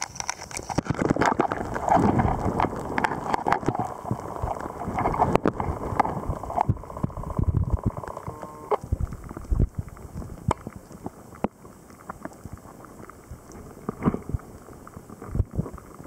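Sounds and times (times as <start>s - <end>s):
water sloshing and gurgling: 0.0s - 16.0s.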